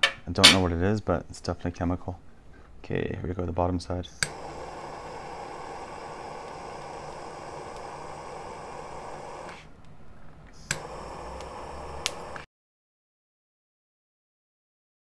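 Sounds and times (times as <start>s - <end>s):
torch igniter click: 4.2s - 9.6s, 10.6s - 12.5s
gas torch flame hissing: 4.2s - 9.7s, 10.6s - 12.5s.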